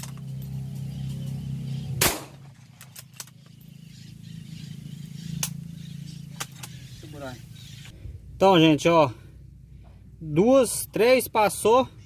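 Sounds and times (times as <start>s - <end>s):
sharp rifle shot: 2.0s - 2.6s.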